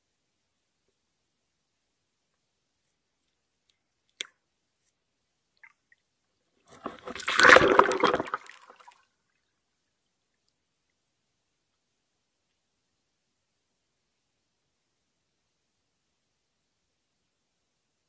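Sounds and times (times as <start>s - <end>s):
underwater water rush and bubbles: 6.7s - 8.9s.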